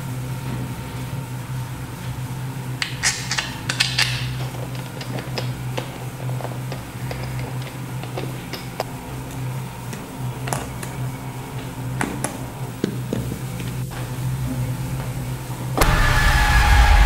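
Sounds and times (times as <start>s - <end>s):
low steady drone: 0.0s - 17.0s
loud rushing with ringing tones: 14.2s - 17.0s.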